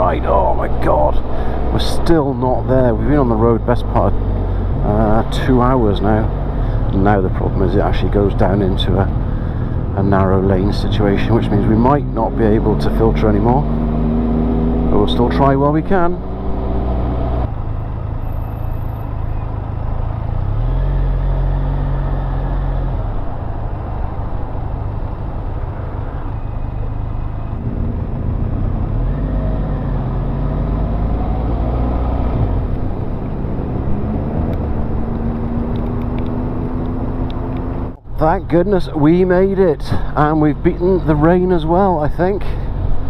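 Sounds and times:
motorcycle engine accelerating: 1.3s - 17.6s, 27.4s - 38.7s.

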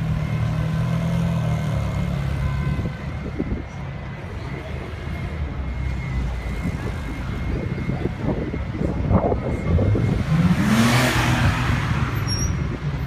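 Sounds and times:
traffic noise: 0.0s - 13.0s
car accelerating past: 10.0s - 12.6s.

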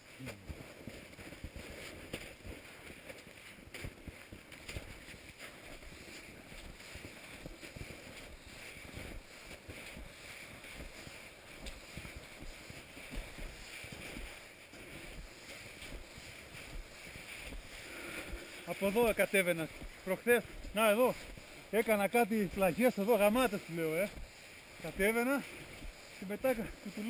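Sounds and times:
skis crunching through snow: 0.0s - 27.0s
ski poles planting: 0.2s - 27.0s.

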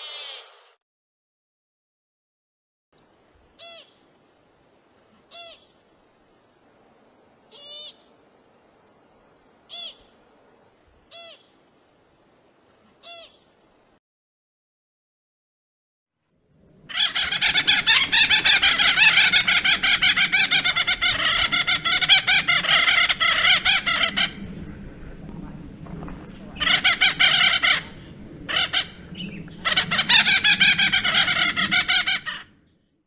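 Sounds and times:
woodpecker calling: 5.3s - 5.7s, 16.9s - 32.8s.

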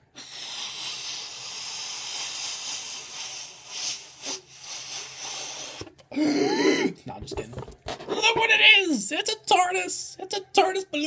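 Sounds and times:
person blowing up a balloon: 0.0s - 6.9s.

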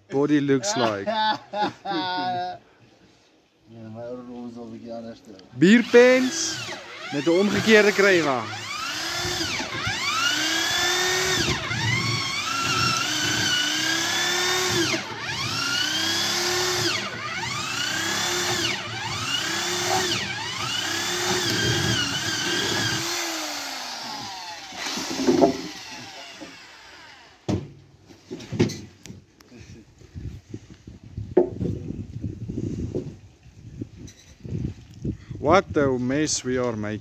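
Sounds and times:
electric drill boring into wood: 5.6s - 27.5s
sharp knocks: 25.0s - 25.8s.

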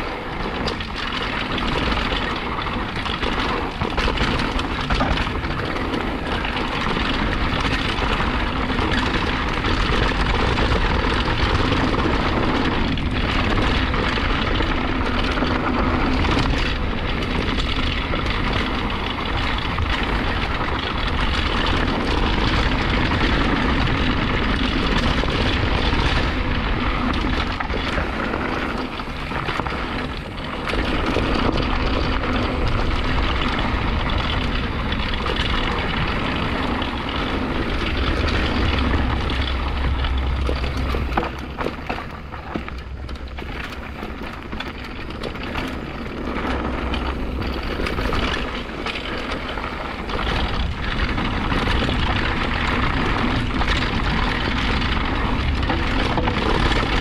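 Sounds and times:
bike rattling and knocking: 0.0s - 57.0s
bike tyres rolling on dirt: 0.0s - 57.0s
wind rumble on microphone: 0.0s - 57.0s.

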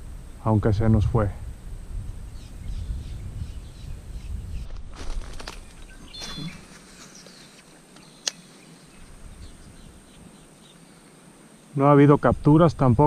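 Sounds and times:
bird chirp: 2.1s - 4.8s, 5.4s - 11.8s
sharp clicks: 7.6s - 8.5s.

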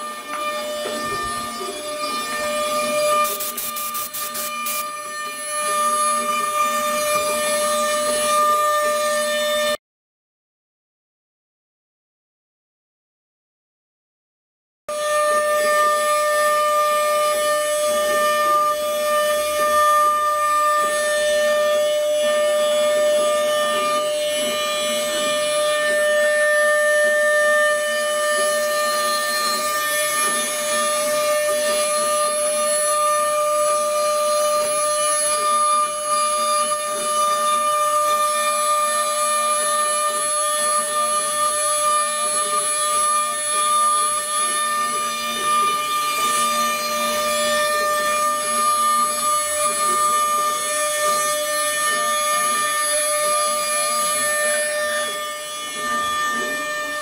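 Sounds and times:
router spindle high whine: 0.0s - 9.8s, 14.9s - 57.0s
hiss of wood cutting: 0.9s - 5.3s, 39.0s - 57.0s.

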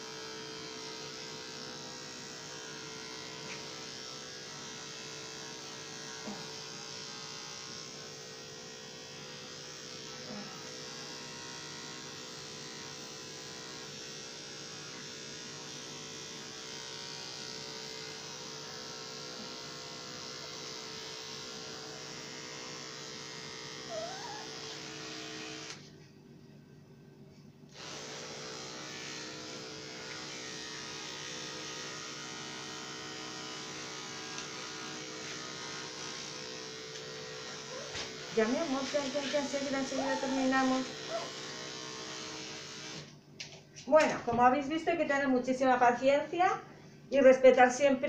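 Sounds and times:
electric clippers humming: 0.0s - 26.0s, 27.7s - 43.5s.

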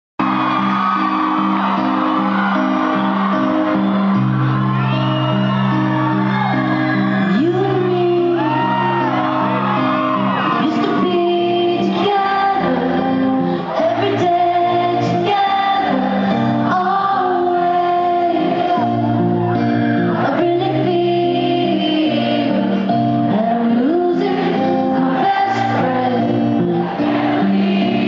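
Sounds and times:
crowd shouting and whooping: 0.2s - 28.0s
woman singing into microphone: 7.2s - 9.2s, 10.4s - 28.0s.

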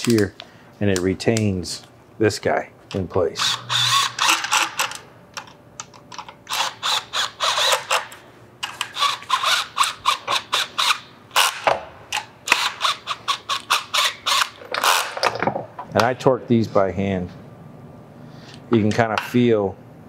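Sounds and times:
hand ratchet clicking: 3.4s - 5.0s, 6.5s - 15.2s.

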